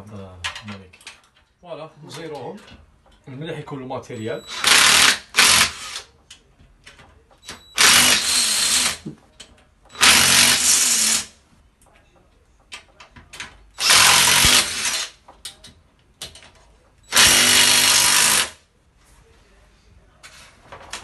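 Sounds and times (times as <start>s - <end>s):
cordless drill driving screws: 4.5s - 6.0s, 7.8s - 9.0s, 9.9s - 11.3s, 13.8s - 15.1s, 17.1s - 18.6s.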